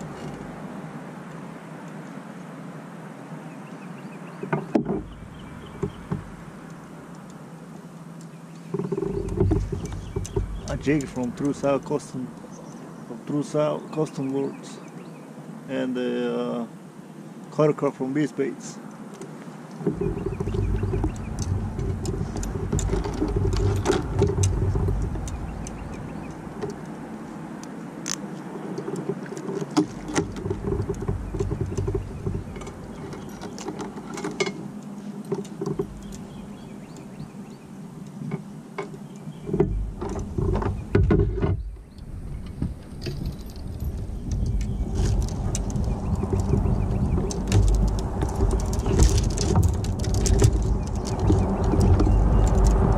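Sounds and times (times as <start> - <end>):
wind buffeting microphone: 4.3 - 7.1, 8.6 - 13.0, 19.8 - 52.9
fishing tackle clicking and rattling: 19.9 - 27.0, 43.0 - 52.9.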